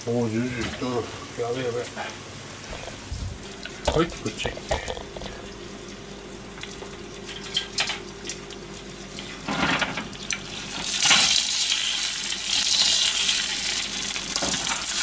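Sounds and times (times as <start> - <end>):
food sizzling in hot oil: 2.4 - 15.0.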